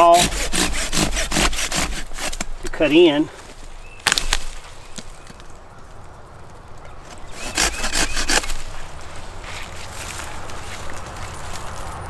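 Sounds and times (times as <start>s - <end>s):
pruning saw cutting wood: 0.0s - 3.0s, 7.0s - 10.9s.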